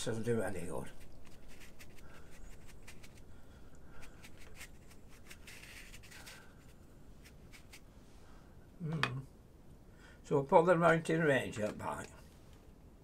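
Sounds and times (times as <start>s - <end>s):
sponge scrubbing paper: 0.6s - 3.3s.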